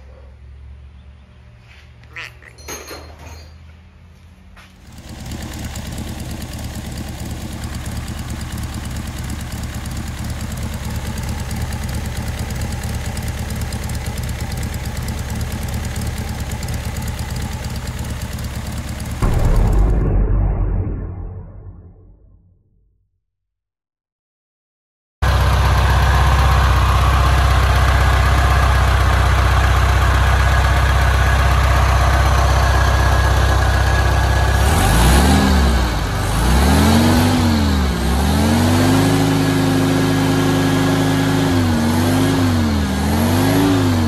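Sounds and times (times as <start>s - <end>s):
car engine running: 4.8s - 20.1s, 25.2s - 44.0s.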